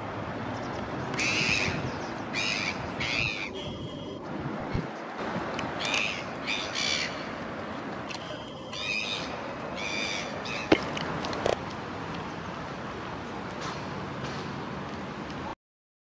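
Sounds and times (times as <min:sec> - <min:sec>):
steady background noise: 0:00.0 - 0:15.6
gulls harsh calls: 0:01.2 - 0:04.2, 0:05.8 - 0:07.5, 0:08.2 - 0:11.0.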